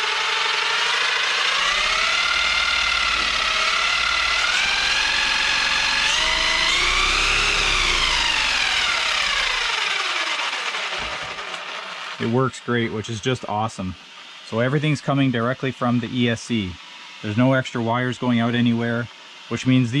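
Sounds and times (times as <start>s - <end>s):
electric motor whining: 0.0s - 12.4s.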